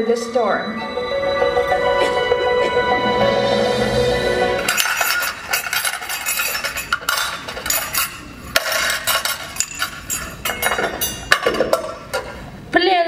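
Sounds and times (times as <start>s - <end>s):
dishes and cutlery clinking: 4.6s - 12.4s.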